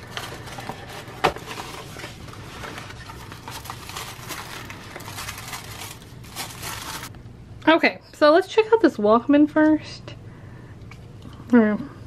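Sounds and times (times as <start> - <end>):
paper rustling and scraping: 0.0 - 7.1.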